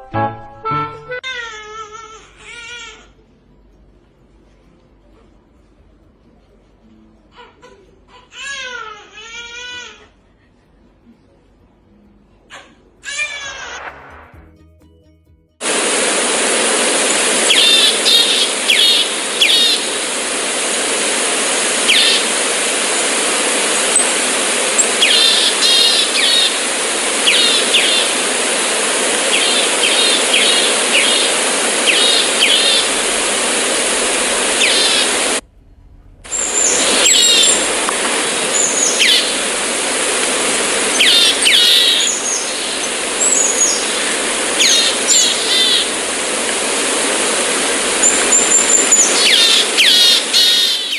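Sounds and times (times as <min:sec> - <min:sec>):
steady background hiss: 0:15.6 - 0:50.9
small birds chirping: 0:17.1 - 0:20.1, 0:21.8 - 0:22.4, 0:23.8 - 0:28.3, 0:29.2 - 0:33.1, 0:34.5 - 0:35.4, 0:36.3 - 0:39.5, 0:40.9 - 0:45.9, 0:48.0 - 0:50.9.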